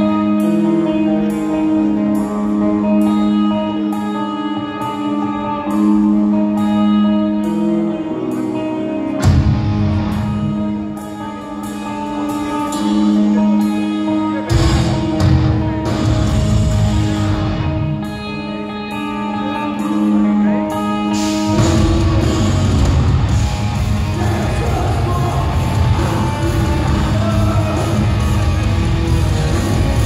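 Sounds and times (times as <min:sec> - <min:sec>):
metal band playing live: 0:00.0 - 0:30.0
sustained guitar chords: 0:00.0 - 0:30.0
heavy bass and drums: 0:14.5 - 0:17.8, 0:21.5 - 0:30.0.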